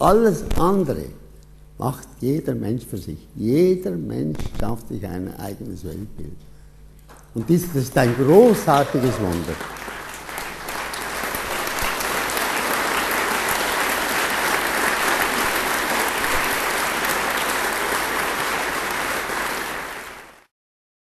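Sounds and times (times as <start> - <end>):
audience applauding: 7.1 - 20.5.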